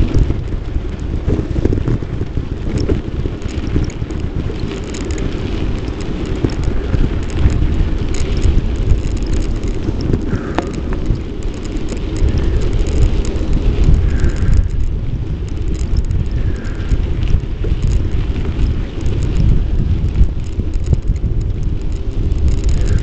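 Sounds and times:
bicycle ticks and rattles: 0.0s - 23.0s
wind buffeting microphone: 0.0s - 23.0s.

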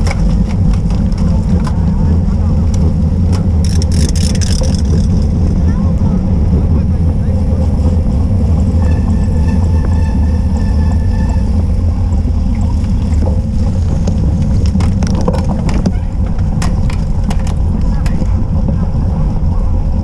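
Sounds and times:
bike rattling clicks: 0.0s - 1.9s, 2.6s - 5.6s, 13.2s - 18.4s
wind rumble on camera: 0.0s - 20.0s.

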